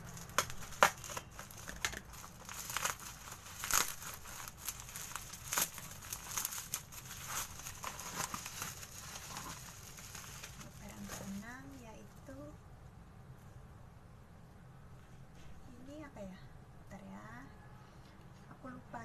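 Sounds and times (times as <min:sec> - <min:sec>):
plastic wrapping crinkling and tearing: 0:00.0 - 0:12.5.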